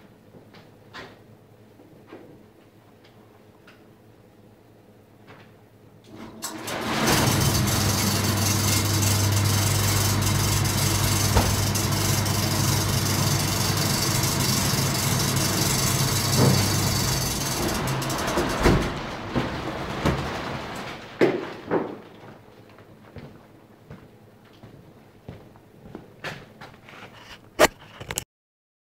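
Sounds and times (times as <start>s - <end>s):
electric fan humming: 6.1s - 21.2s.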